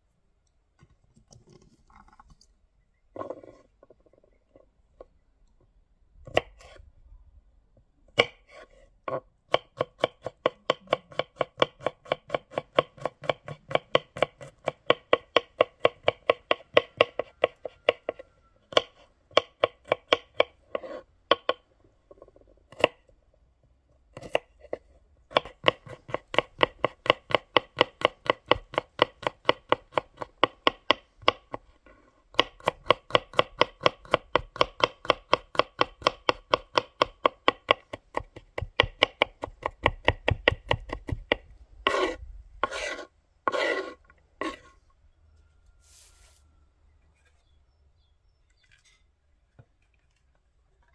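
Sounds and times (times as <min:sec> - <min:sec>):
knife chopping on wooden board: 0:08.2 - 0:21.6, 0:25.3 - 0:31.5, 0:32.3 - 0:44.7.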